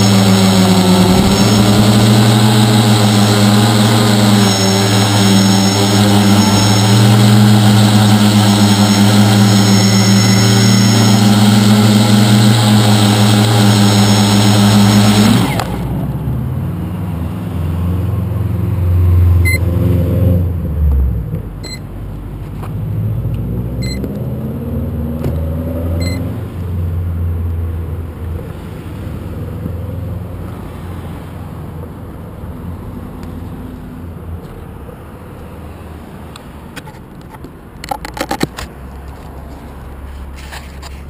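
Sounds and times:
cars passing: 0.0 - 41.0
faint short beep: 4.5 - 7.2, 19.4 - 19.6, 21.6 - 21.9, 23.8 - 24.0, 26.0 - 26.3.

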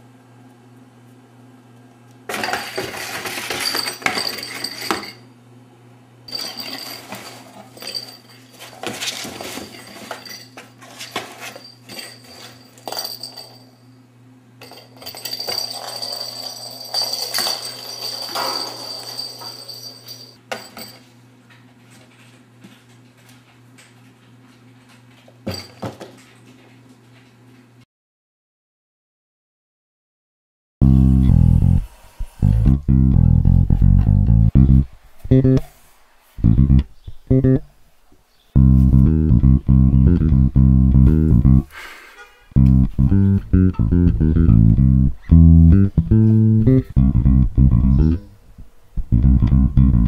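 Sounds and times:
steady low hum: 30.8 - 35.7, 36.4 - 37.8, 38.5 - 41.7, 42.5 - 50.0.

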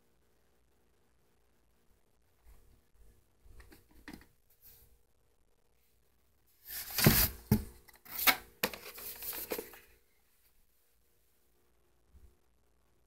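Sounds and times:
cardboard packaging rustling: 6.6 - 9.9.

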